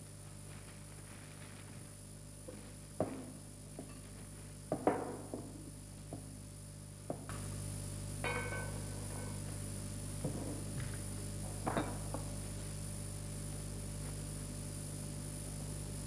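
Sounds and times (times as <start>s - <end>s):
steady low hum: 0.0s - 16.0s
knocks and clinks: 8.2s - 9.4s.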